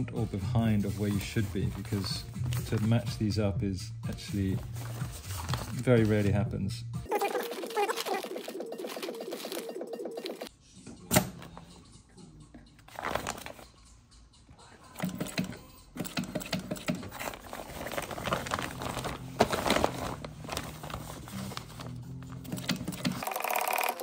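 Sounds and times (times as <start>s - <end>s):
sailcloth crinkling: 17.1s - 22.5s
sewing machine stitching: 22.4s - 24.0s.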